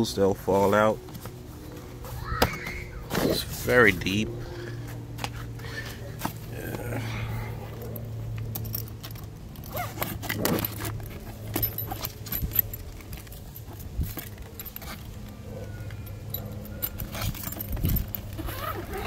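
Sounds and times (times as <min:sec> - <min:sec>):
steady low hum: 0:00.0 - 0:19.0
metal hardware clinking: 0:07.6 - 0:19.0.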